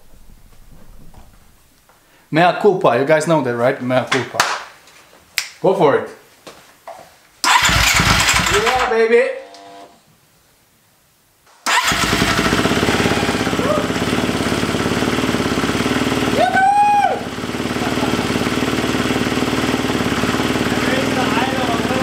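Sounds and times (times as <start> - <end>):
dirt bike engine running: 7.5 - 8.9, 11.8 - 22.0.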